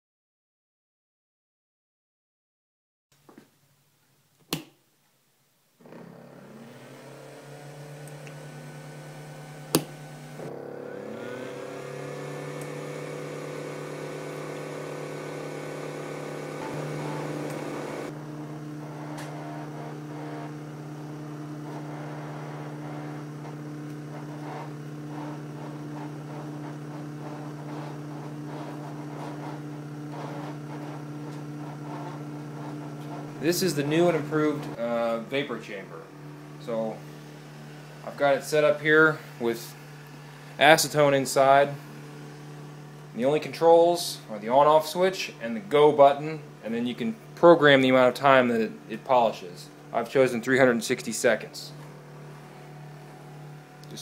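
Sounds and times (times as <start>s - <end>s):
rising whine: 6.0s - 46.5s
steady electric hum: 6.2s - 54.0s.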